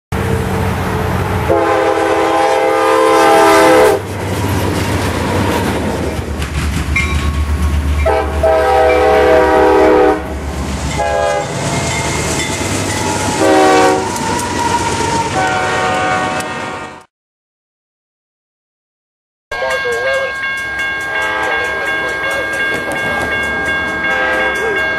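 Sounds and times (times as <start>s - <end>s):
locomotive air horn blasts: 1.4s - 4.1s, 8.0s - 11.6s, 13.1s - 14.4s, 15.3s - 17.1s, 21.2s - 21.8s, 24.1s - 24.8s
wheels clacking on rails: 3.9s - 9.6s, 10.2s - 15.3s, 19.6s - 24.9s.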